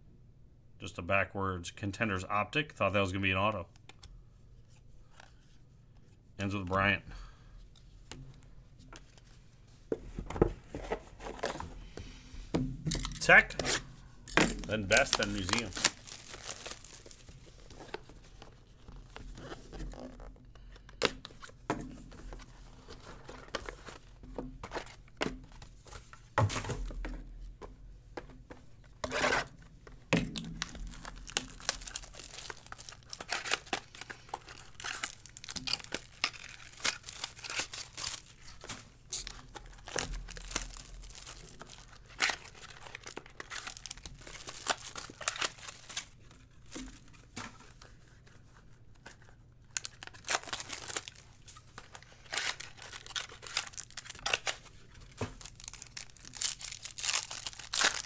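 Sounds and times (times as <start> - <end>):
packs being torn open: 14.5 - 18.0, 30.3 - 46.2, 49.2 - 58.0
foil wrappers crinkling: 14.5 - 20.3, 30.4 - 58.0.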